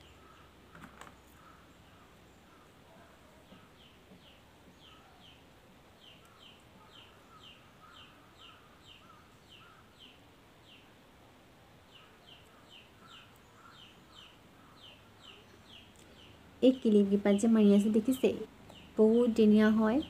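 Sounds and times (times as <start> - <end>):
faint bird chirping: 0.0 - 20.0
low background hiss: 0.0 - 20.0.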